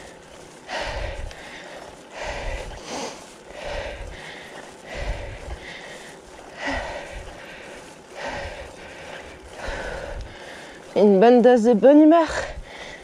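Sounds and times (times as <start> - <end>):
person breathing hard: 0.0 - 11.0, 12.4 - 13.0.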